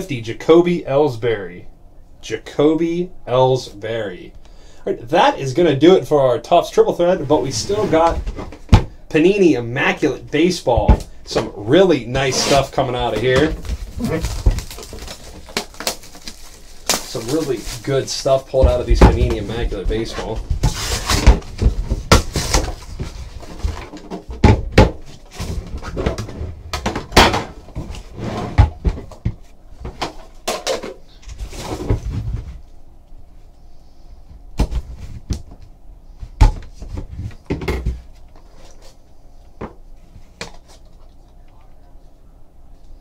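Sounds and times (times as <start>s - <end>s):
cardboard boxes knocking and rustling: 13.1s - 15.9s, 18.6s - 30.0s.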